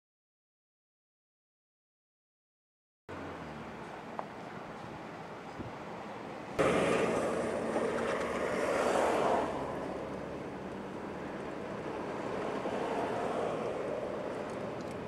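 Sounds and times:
road and wind rush from car: 0:03.1 - 0:15.0.

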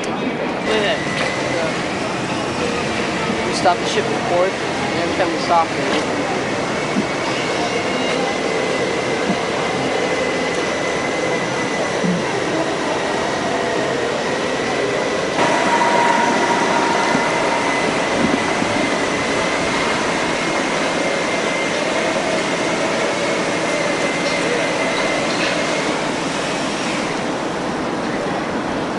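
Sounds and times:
ship machinery drone: 0:15.3 - 0:27.8
faint high whine: 0:15.4 - 0:21.7.

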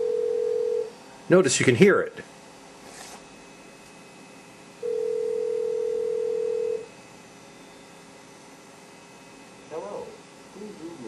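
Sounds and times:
steady low ringback tone: 0:00.0 - 0:00.9, 0:04.8 - 0:08.4.

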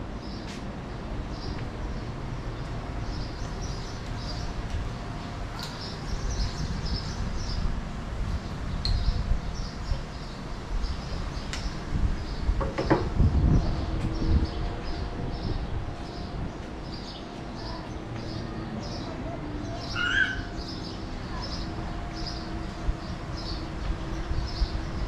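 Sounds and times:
steady low rumble: 0:00.0 - 0:19.8
small birds chirping: 0:01.3 - 0:07.7, 0:14.1 - 0:25.0.

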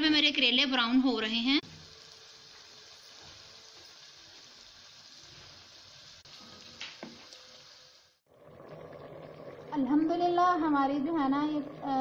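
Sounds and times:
vegetables frying in hot fat: 0:00.0 - 0:08.2.

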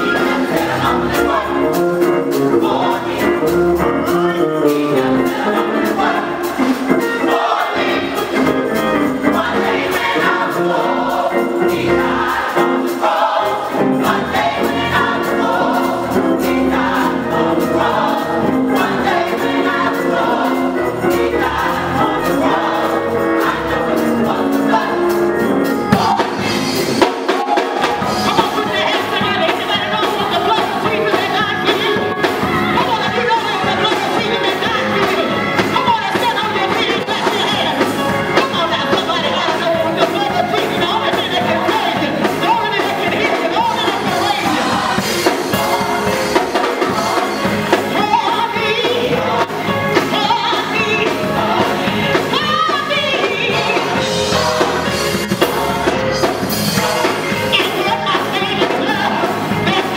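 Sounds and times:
electric bass guitar: 0:00.0 - 0:10.4
drum kit: 0:00.0 - 0:59.9
gospel choir singing: 0:00.0 - 0:59.9
keyboard: 0:00.0 - 0:59.9.

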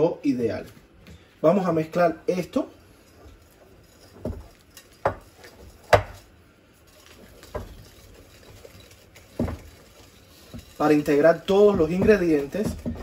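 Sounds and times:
stirring thick mixture in bowl: 0:00.4 - 0:13.0
utensil knocking against bowl: 0:11.4 - 0:13.0.

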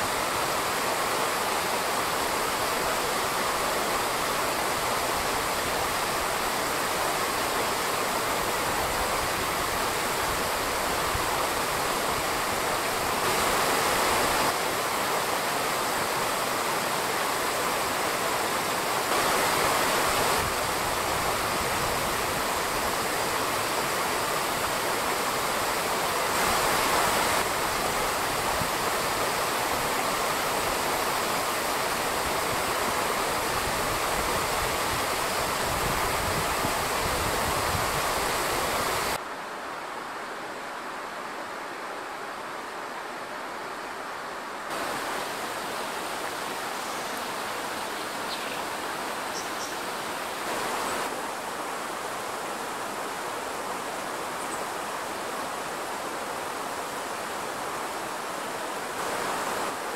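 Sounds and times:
stream running over stones: 0:00.0 - 0:39.2, 0:44.7 - 0:59.9.

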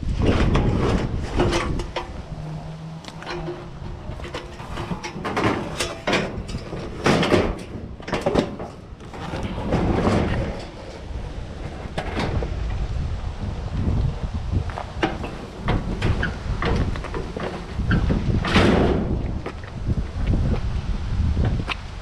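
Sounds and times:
hand truck rolling rumble: 0:00.0 - 0:22.0
metal stove clanking and rattling: 0:00.2 - 0:02.4, 0:03.2 - 0:12.4, 0:15.0 - 0:19.2.

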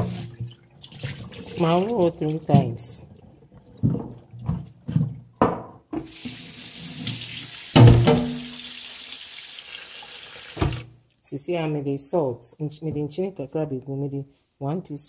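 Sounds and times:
faucet running into bowl: 0:06.0 - 0:10.8
loud ringing knock: 0:07.8 - 0:08.5
bowl knocking against metal sink: 0:07.8 - 0:08.6.

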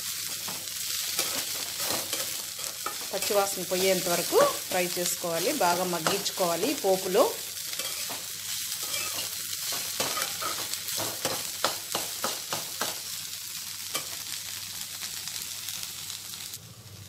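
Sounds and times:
leaves sizzling in oil: 0:00.0 - 0:17.0
spatula scraping a pan: 0:00.4 - 0:04.8, 0:07.6 - 0:12.4.

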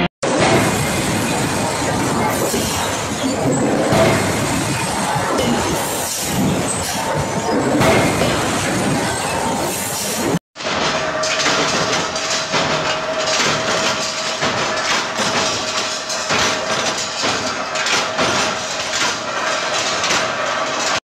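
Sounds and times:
machinery whine: 0:00.0 - 0:16.2
metal clattering on metal: 0:00.3 - 0:21.0.

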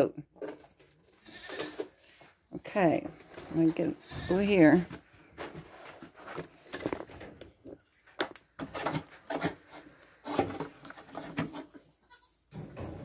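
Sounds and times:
knocks and scuffs of handling: 0:03.1 - 0:11.9.

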